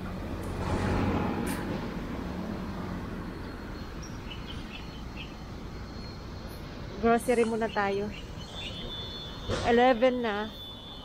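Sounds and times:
steady road hum: 0.0 - 11.0
car passing close by: 0.3 - 3.6
faint high chirps: 3.2 - 11.0.

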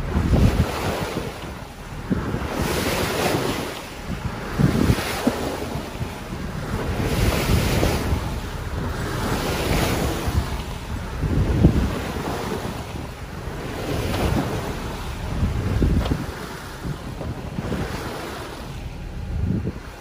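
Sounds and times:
water rushing along boat hull: 0.0 - 20.0
wind buffeting microphone: 0.0 - 20.0.

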